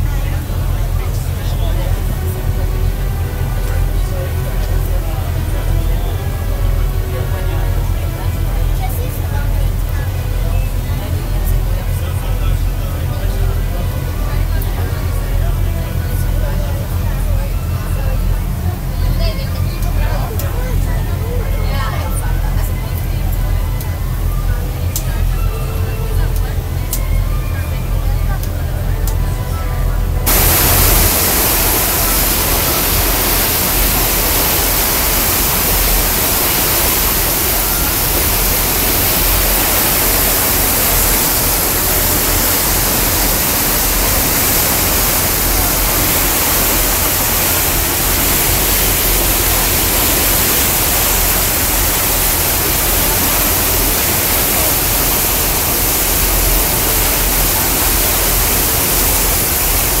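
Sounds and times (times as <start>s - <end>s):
water rushing past hull: 30.3s - 60.0s.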